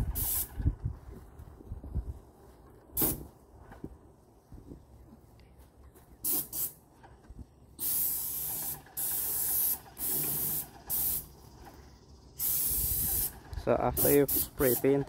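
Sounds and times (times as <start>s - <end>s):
paint spray gun spraying: 0.0s - 0.6s, 3.0s - 3.3s, 6.2s - 6.8s, 7.8s - 11.8s, 12.4s - 15.0s.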